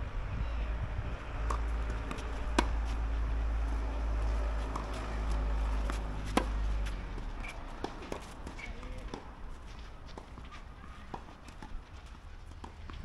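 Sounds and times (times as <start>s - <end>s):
low rumble: 0.0s - 5.9s
tennis ball struck by rackets: 1.4s - 9.3s.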